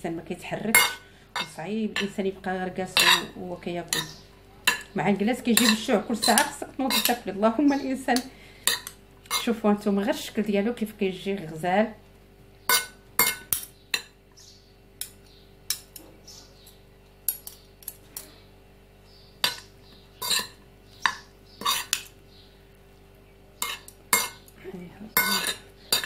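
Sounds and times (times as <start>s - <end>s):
metal spoon clinking on dishes: 3.0s - 4.9s, 5.5s - 7.2s, 12.7s - 14.2s, 19.4s - 22.1s, 23.6s - 24.6s, 25.2s - 26.0s.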